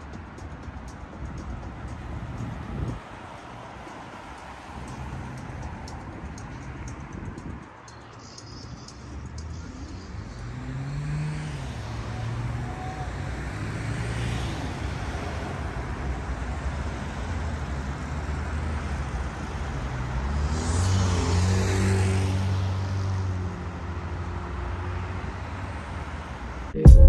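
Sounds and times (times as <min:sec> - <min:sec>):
cars driving past: 0:00.0 - 0:26.8.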